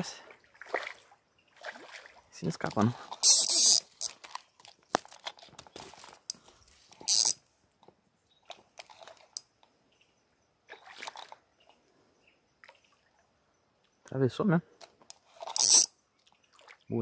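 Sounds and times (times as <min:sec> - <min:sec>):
fishing line handling noise: 0:02.6 - 0:09.7, 0:14.8 - 0:16.0.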